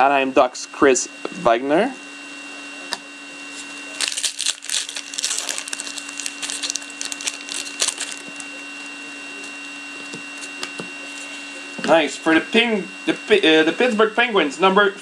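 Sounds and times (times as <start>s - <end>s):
foil pack crinkling and tearing: 3.9s - 8.9s.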